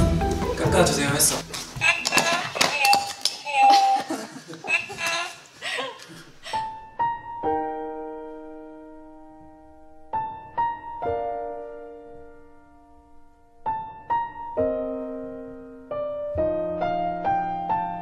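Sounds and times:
gentle piano music: 6.5 - 18.0.

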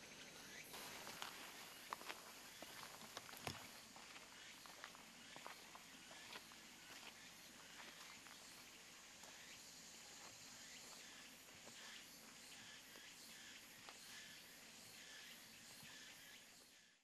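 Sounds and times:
insects chirring: 0.0 - 17.0
footsteps on dirt trail: 0.7 - 13.1.

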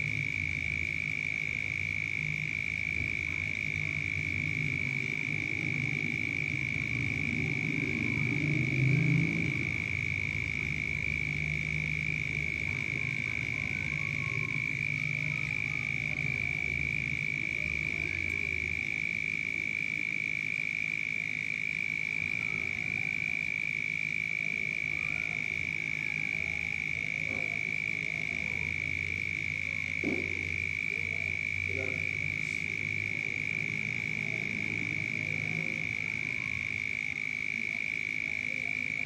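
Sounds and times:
frogs croaking: 0.0 - 39.0
high-pitched drone: 0.0 - 39.0.

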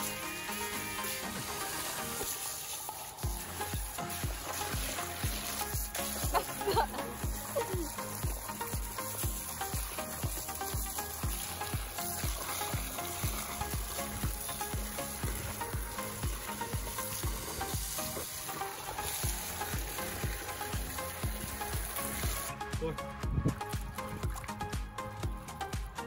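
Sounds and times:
background music with steady beat: 0.0 - 26.0
hose water splashing into pool: 0.0 - 26.0.

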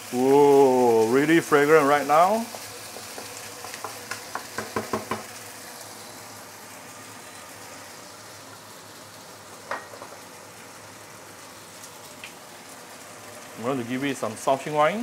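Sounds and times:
meat sizzling in a wok: 0.0 - 15.0
spatula knocking wok: 2.4 - 5.3.

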